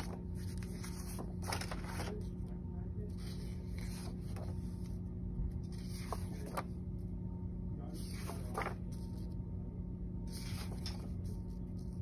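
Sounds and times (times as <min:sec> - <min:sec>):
paper pages rustling: 0:00.0 - 0:02.5, 0:03.1 - 0:07.0, 0:07.9 - 0:09.4, 0:10.3 - 0:12.0
steady low hum: 0:00.0 - 0:12.0.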